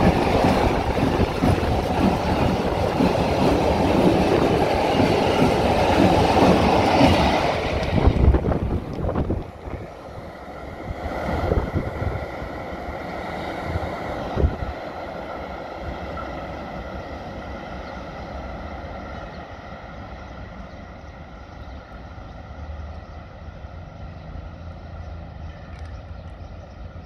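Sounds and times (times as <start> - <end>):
train wheels clattering: 0.0 - 9.5
wind on microphone: 0.0 - 10.0, 10.8 - 12.5, 13.6 - 14.8
train rumble: 0.0 - 27.0.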